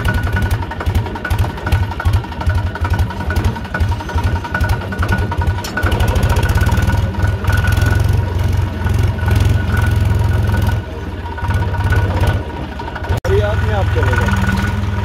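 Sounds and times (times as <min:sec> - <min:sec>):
tractor diesel engine chugging: 0:00.0 - 0:15.0.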